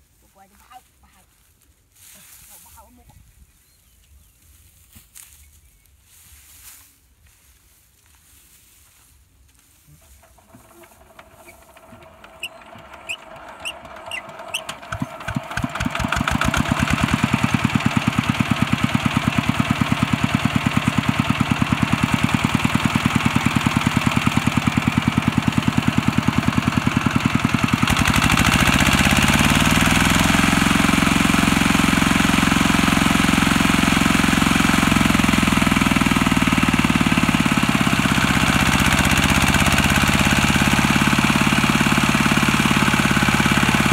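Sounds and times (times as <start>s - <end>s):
diesel engine starting and running: 9.9s - 43.9s.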